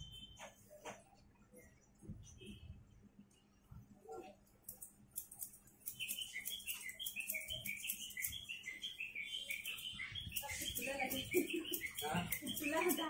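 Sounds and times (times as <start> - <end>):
scissors snipping over a comb: 4.6 - 8.0.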